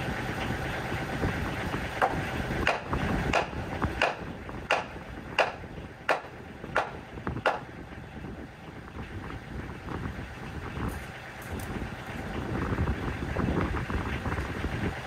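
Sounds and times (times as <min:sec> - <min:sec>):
tractor engine idling: 0:00.0 - 0:15.0
hammer striking nails into wood: 0:02.7 - 0:07.6.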